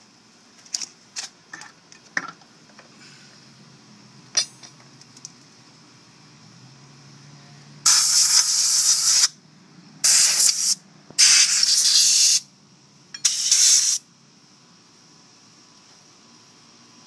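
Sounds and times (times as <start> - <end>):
compressed air blow gun hissing: 7.9 - 9.4, 10.0 - 12.5, 13.2 - 14.0.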